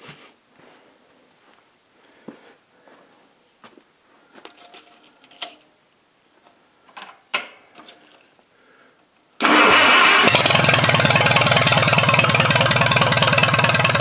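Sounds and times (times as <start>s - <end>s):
tractor engine starting: 9.4s - 14.0s.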